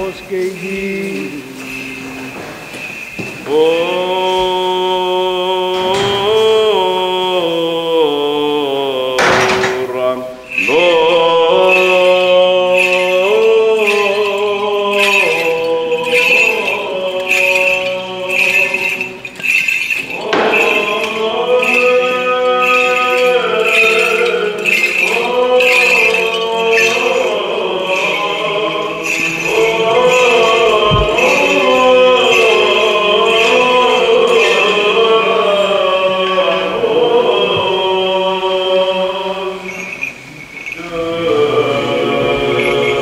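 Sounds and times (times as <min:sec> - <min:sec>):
bright ringing strokes: 0:00.0 - 0:04.0, 0:09.7 - 0:35.8, 0:39.4 - 0:43.0
men chanting: 0:00.0 - 0:43.0.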